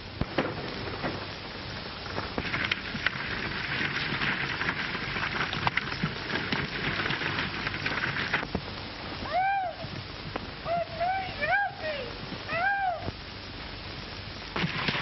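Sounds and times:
horses galloping: 0.0s - 13.2s, 14.4s - 15.0s
wagon rattling over rough ground: 2.0s - 8.7s, 14.5s - 15.0s.

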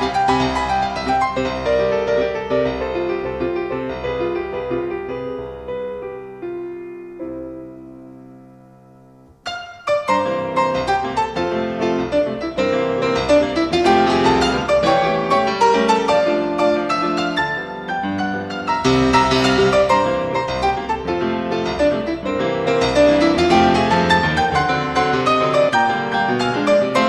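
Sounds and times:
solo piano dance piece: 0.0s - 27.0s.

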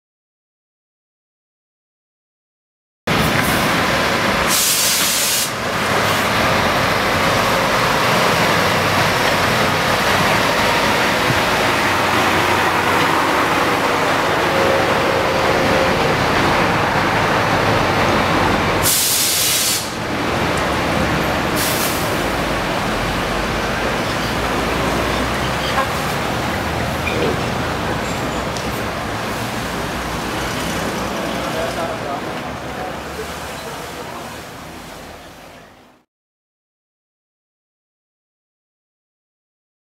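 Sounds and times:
truck engine rumbling: 3.1s - 35.8s
sharp air hisses: 4.5s - 5.6s, 18.8s - 20.0s, 21.6s - 22.1s.

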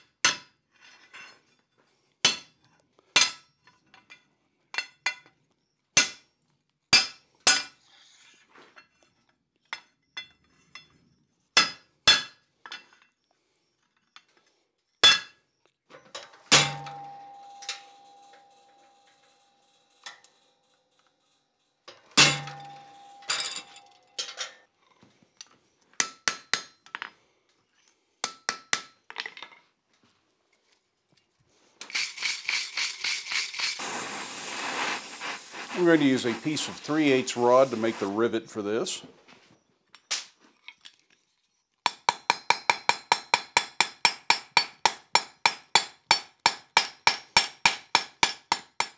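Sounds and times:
hammer striking iron on anvil: 6.0s - 6.2s, 6.9s - 7.7s, 16.5s - 19.3s, 22.2s - 24.4s, 26.0s - 26.8s, 41.9s - 48.9s
wire brush scrubbing metal: 31.9s - 38.4s.

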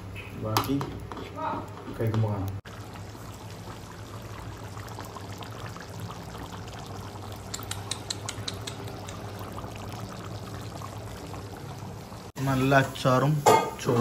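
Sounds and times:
curry simmering hiss: 2.4s - 14.0s
sharp clicks: 7.5s - 9.2s.

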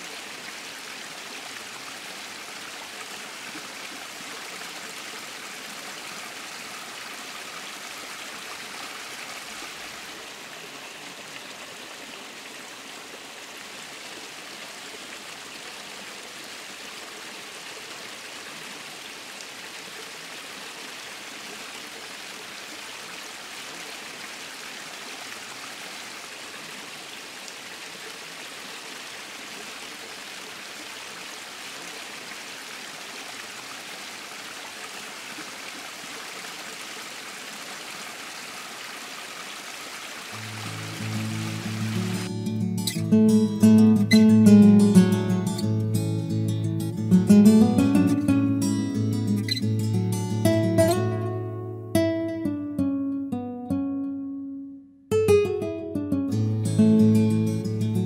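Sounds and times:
stream splashing over rocks: 0.0s - 45.6s.

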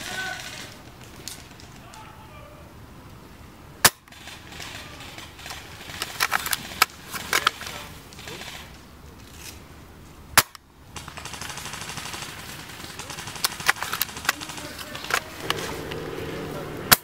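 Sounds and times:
airsoft rifle shots: 3.8s - 8.7s, 10.4s - 17.0s.

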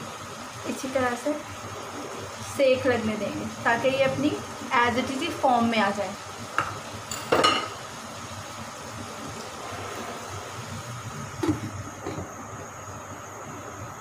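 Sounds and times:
food sizzling in a frying pan: 0.0s - 14.0s
glass lid clattering on pan: 6.6s - 7.8s.

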